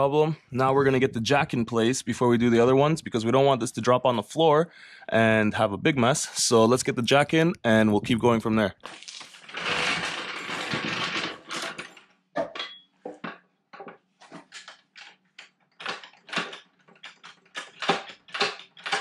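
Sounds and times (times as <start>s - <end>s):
floor jack scraping: 9.3s - 12.0s
metallic clicks and clunks: 9.5s - 19.0s.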